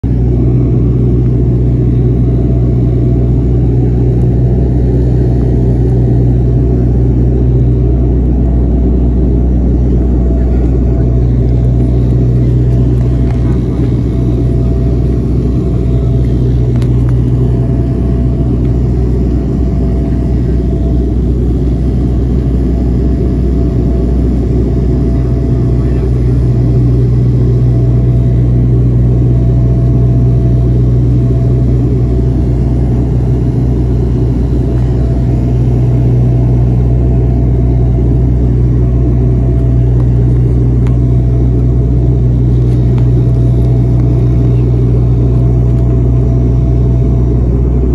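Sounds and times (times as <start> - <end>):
turboprop engines droning: 0.0 - 47.9.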